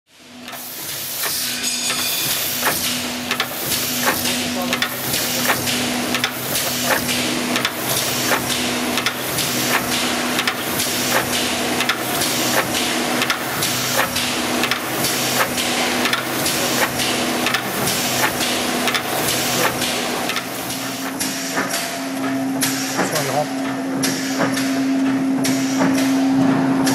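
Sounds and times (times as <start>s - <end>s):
machine hum: 0.2s - 26.9s.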